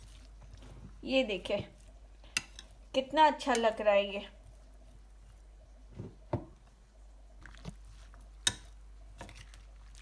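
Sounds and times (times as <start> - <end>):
salad squelching: 0.0 - 3.7.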